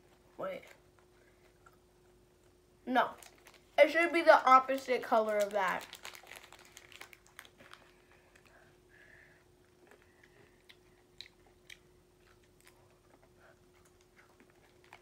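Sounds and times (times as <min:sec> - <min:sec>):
faint steady hum: 0:00.0 - 0:15.0
chewing candy: 0:05.4 - 0:08.7, 0:09.6 - 0:15.0.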